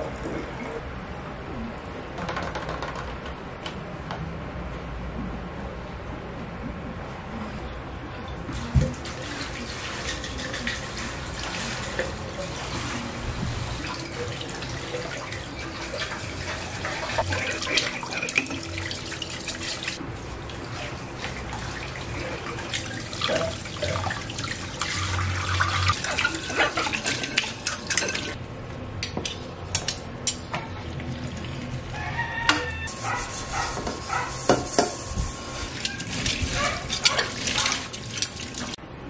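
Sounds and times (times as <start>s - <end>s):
water splashing: 8.5s - 28.4s, 35.8s - 38.8s.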